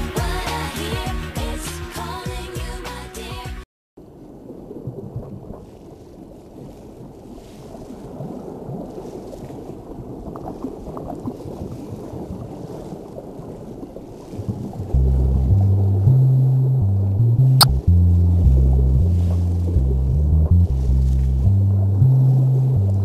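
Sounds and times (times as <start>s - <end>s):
music with deep bass: 0.0s - 3.3s, 15.0s - 23.0s
bubbling: 4.2s - 23.0s.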